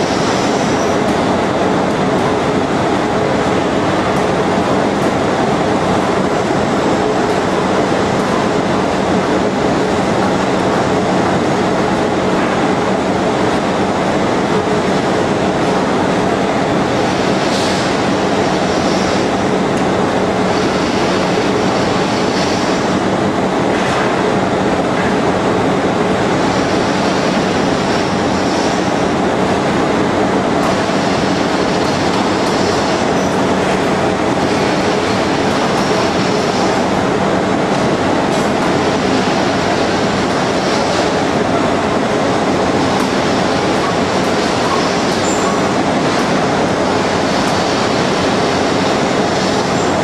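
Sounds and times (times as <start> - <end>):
lathe mechanical hum: 0.0 - 50.0.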